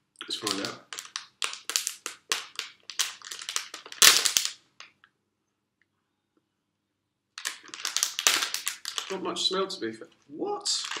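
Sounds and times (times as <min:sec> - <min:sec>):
foil snack packet crinkling: 0:00.3 - 0:04.6, 0:07.4 - 0:09.2, 0:10.6 - 0:11.0
packet seal popping: 0:00.4 - 0:04.6, 0:07.4 - 0:09.2, 0:10.8 - 0:11.0.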